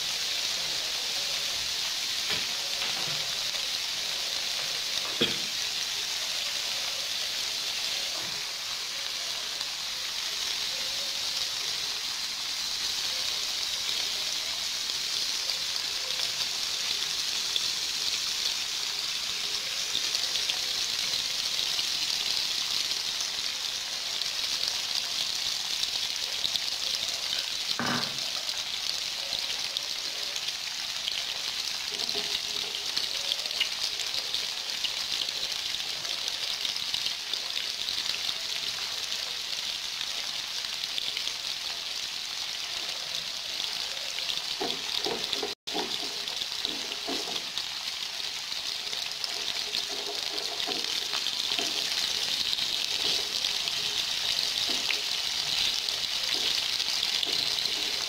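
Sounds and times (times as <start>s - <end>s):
tofu sizzling in hot oil: 0.0s - 58.0s
knock: 27.8s - 28.2s.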